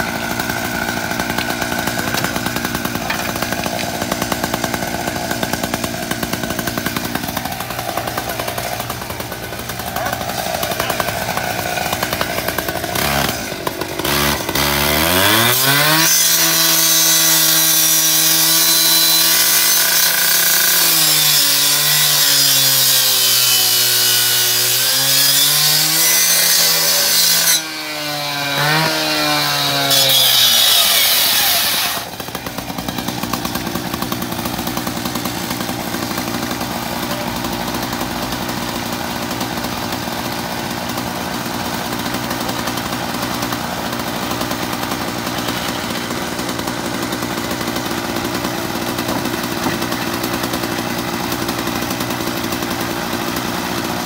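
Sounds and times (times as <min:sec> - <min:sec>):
engine idling: 0:00.0 - 0:14.1, 0:32.1 - 0:54.0
rescue saw cutting metal: 0:00.0 - 0:54.0.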